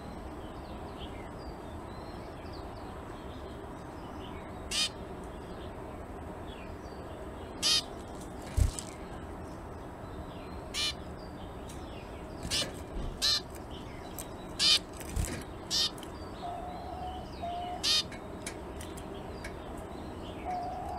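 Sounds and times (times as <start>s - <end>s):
finch short calls: 7.6s - 7.9s, 10.8s - 11.0s, 12.4s - 13.5s, 14.6s - 16.0s, 17.8s - 18.1s.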